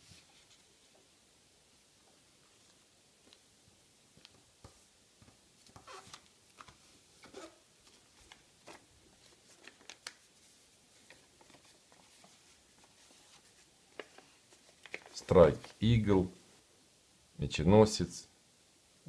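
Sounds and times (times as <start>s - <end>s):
paper rustling and crinkling: 5.6s - 15.8s.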